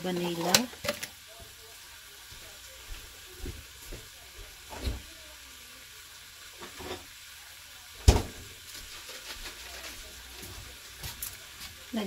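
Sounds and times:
faint saucepan hiss: 0.0s - 12.0s.

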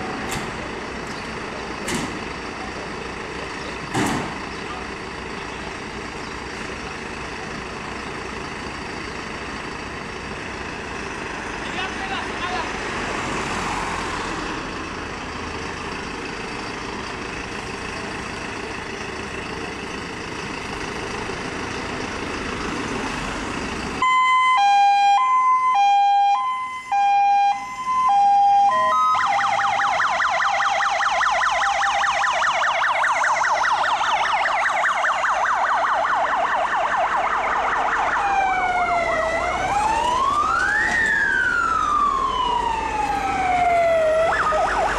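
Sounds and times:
diesel engines running: 0.0s - 44.9s
fire engine siren: 24.0s - 44.9s.

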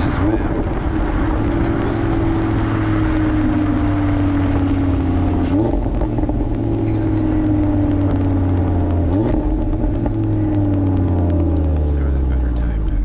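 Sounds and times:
car engine revving while driving: 0.0s - 13.0s.

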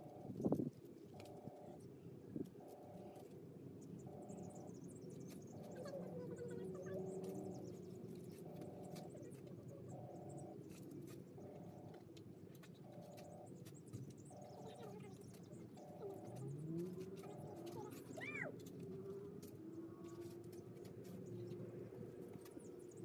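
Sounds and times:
faint bird chirps: 0.0s - 23.0s
repeating electronic tone: 5.5s - 10.6s, 12.8s - 18.4s.

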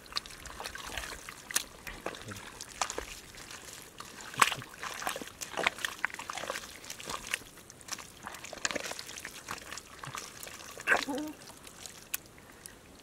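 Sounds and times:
hands squelching through wet mud: 0.0s - 12.8s.

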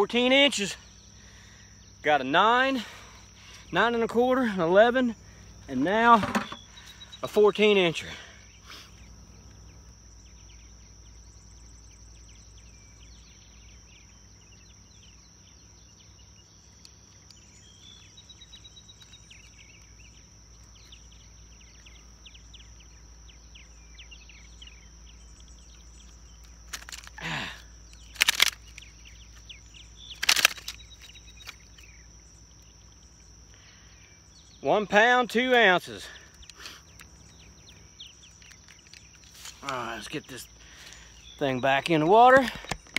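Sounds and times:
birds chirping: 0.0s - 42.9s
insect drone: 0.0s - 42.9s
sharp clicks: 26.4s - 27.2s, 27.9s - 29.5s, 30.1s - 31.9s.

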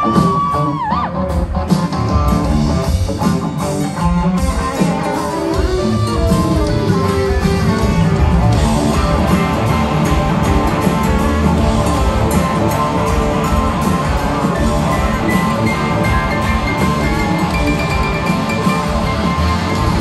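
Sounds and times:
drums: 0.0s - 20.0s
electric guitars: 0.0s - 20.0s
keyboards: 0.0s - 20.0s.

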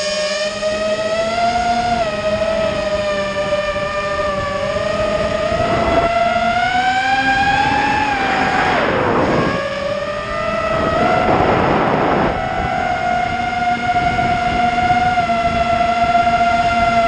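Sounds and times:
drone motors whining: 0.0s - 17.0s
rushing air on microphone: 7.6s - 10.0s, 10.7s - 12.7s.

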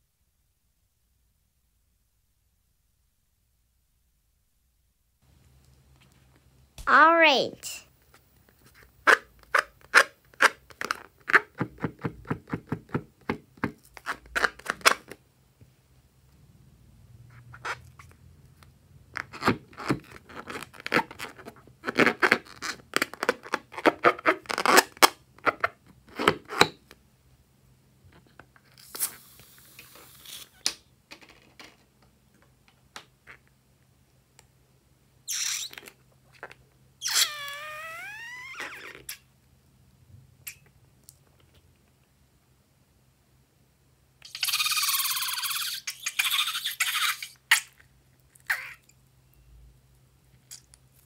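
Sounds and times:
short hiss: 28.8s - 30.6s
balloon neck squealing: 37.0s - 39.2s.

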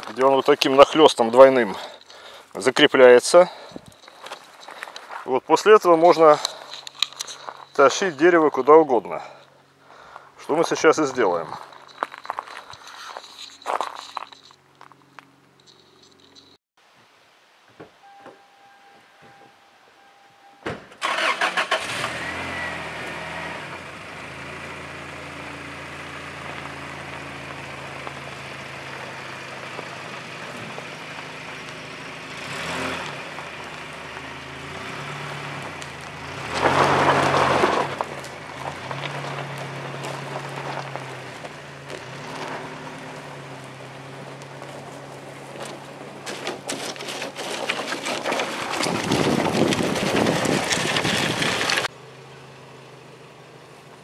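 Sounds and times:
pickup truck engine starting: 20.8s - 54.0s
engine throttle surges: 21.0s - 46.5s.

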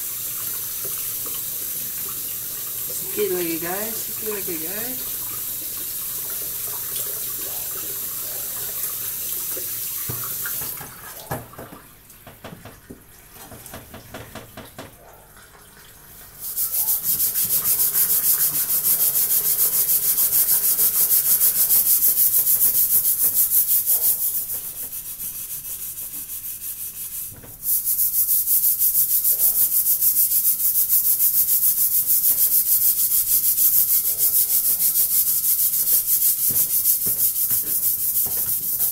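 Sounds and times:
tap water running into metal sink: 0.0s - 23.5s, 33.9s - 38.9s
pot scrubbed by hand: 2.8s - 5.3s, 16.4s - 38.9s.

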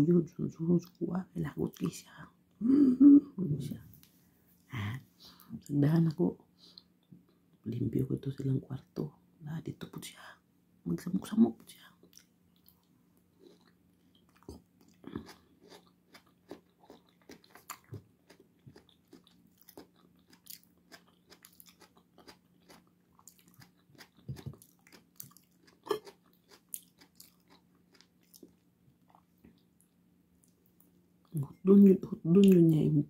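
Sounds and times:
person chewing: 12.0s - 31.4s.

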